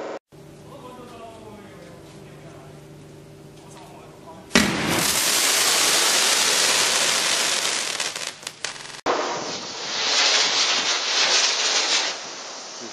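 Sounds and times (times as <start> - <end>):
fireworks crackling: 4.5 - 12.9
fireworks pops: 4.5 - 12.9
fireworks rushing noise: 4.5 - 12.9.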